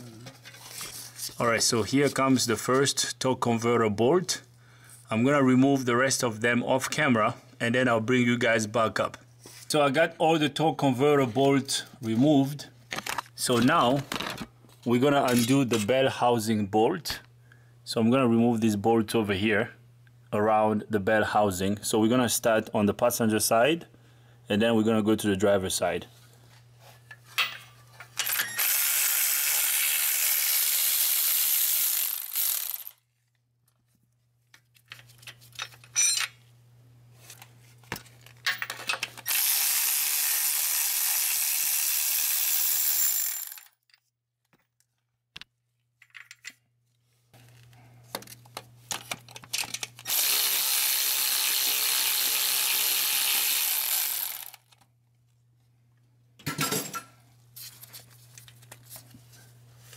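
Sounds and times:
power ratchet running: 0:28.2 - 0:33.0, 0:39.3 - 0:43.7, 0:50.1 - 0:54.7
ratchet clicks and clinks: 0:28.2 - 0:33.0, 0:39.2 - 0:43.8, 0:50.0 - 0:54.7.

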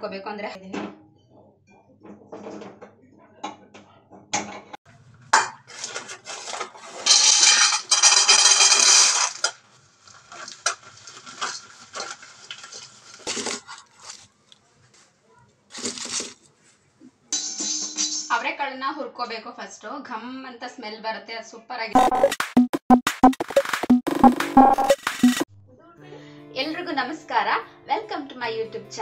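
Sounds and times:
metal kitchenware clinking: 0:05.4 - 0:09.5, 0:17.4 - 0:18.4
plastic bag crinkling: 0:05.7 - 0:14.4, 0:15.7 - 0:16.5
dry ingredients rattling into plate: 0:05.8 - 0:13.7.

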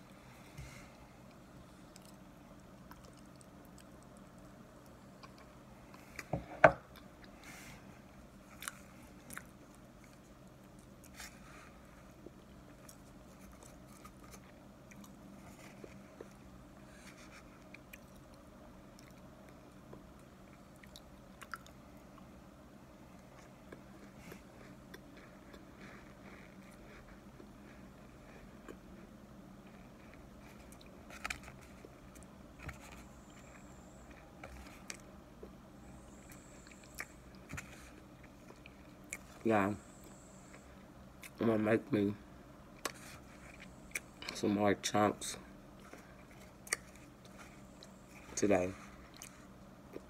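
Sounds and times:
person chewing and crunching: 0:08.4 - 0:11.4, 0:12.1 - 0:22.2, 0:29.6 - 0:39.4, 0:42.7 - 0:44.4, 0:45.8 - 0:50.0.

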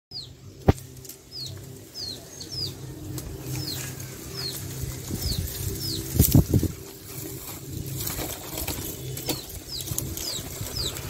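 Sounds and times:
bird chirping: 0:00.1 - 0:11.0
sharp crack: 0:00.6 - 0:01.2.

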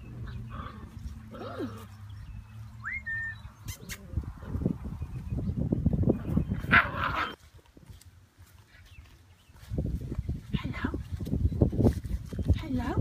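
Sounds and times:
thin rising chirp: 0:02.0 - 0:04.0
rustling in leaves: 0:06.9 - 0:13.0.

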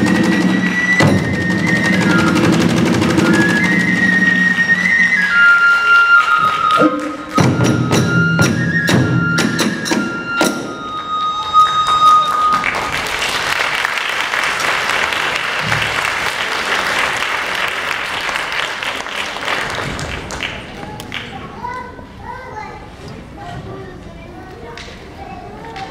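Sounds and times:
bamboo flute high notes: 0:00.0 - 0:13.2
audience applauding: 0:04.4 - 0:07.7, 0:10.9 - 0:21.5.

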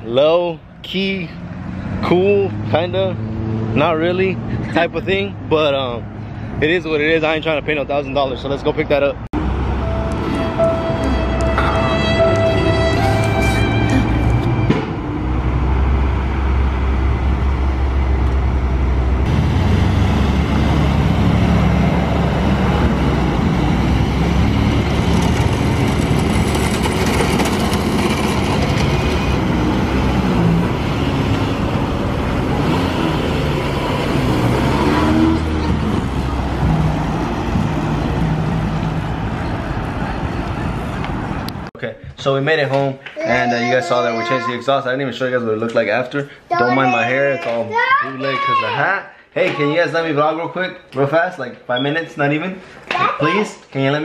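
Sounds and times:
car engine idling and revving: 0:09.4 - 0:13.4, 0:14.0 - 0:41.7.

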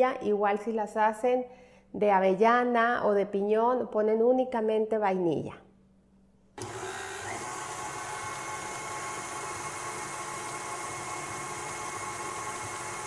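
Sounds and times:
stand mixer motor whine: 0:06.6 - 0:13.0.

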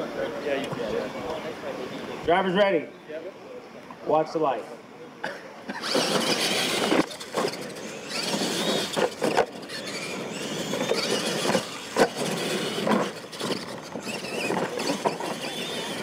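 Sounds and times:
toy truck motors whining: 0:05.7 - 0:16.0.

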